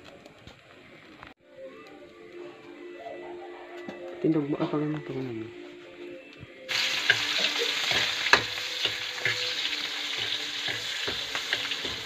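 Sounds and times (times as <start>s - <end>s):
food sizzling in a wok: 6.7s - 12.0s.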